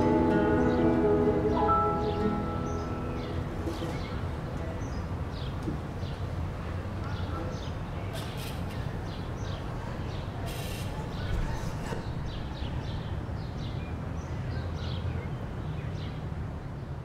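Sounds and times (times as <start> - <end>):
birds chirping: 0.0 - 7.8.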